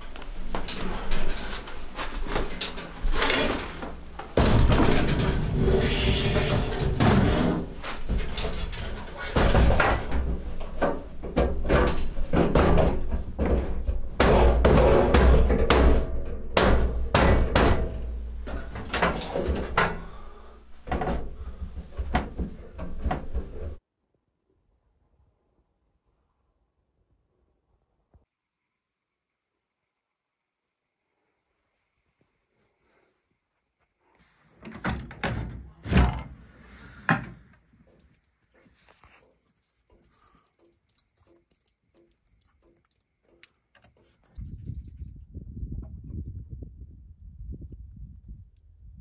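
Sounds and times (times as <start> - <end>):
metal clanks and scrapes: 0.0 - 23.8.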